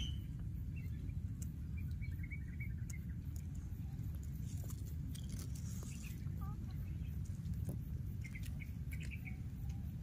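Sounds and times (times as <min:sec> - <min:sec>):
high chirping calls: 0:00.0 - 0:04.3, 0:08.1 - 0:10.0.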